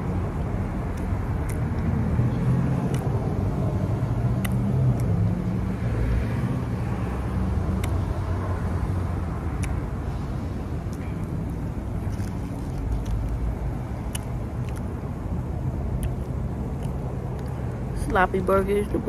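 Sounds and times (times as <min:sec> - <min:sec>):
mouth clicks from chewing: 0:04.4 - 0:05.2, 0:14.0 - 0:14.9.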